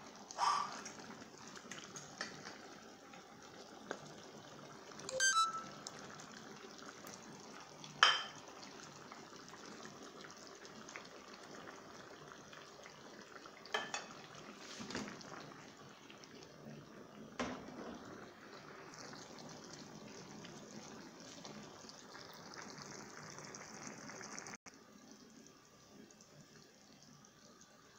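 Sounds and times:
stew bubbling and hissing: 0.0s - 5.0s
cookware clinking against pan: 8.0s - 8.4s, 13.7s - 14.1s.

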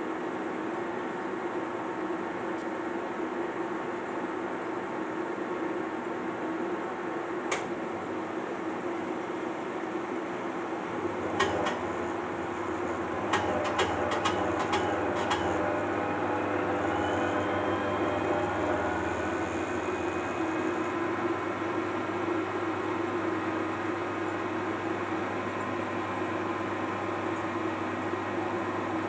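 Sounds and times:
mechanical hum: 0.0s - 29.0s
faint rising whine: 14.8s - 22.8s.

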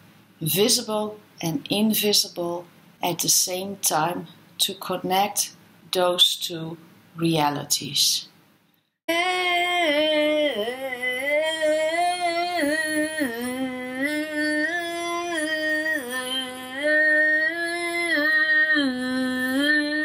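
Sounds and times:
person singing wordless tones: 9.1s - 20.0s.

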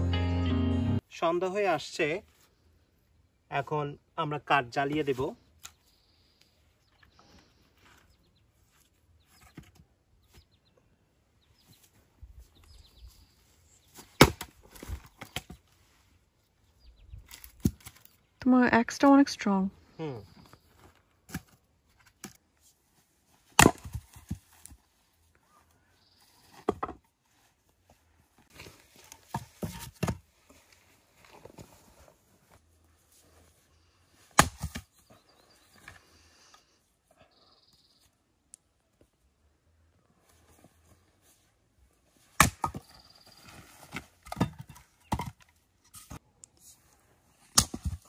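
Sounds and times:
axe splitting wood: 14.2s - 14.5s, 23.6s - 24.3s, 34.4s - 34.8s, 42.4s - 42.9s, 47.5s - 48.0s
logs knocking together: 23.6s - 24.4s, 44.2s - 45.4s
wooden knocks and clunks: 26.6s - 27.0s.

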